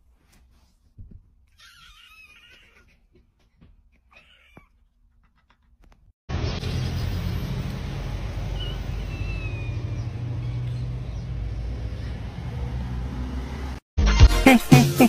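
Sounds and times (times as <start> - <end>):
faint high chirp: 8.6 - 10.9
music with a beat: 14.0 - 15.0.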